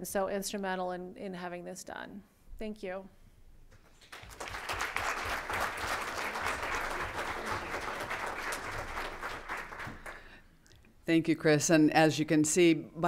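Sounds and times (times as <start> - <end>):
audience applauding: 3.9 - 10.4.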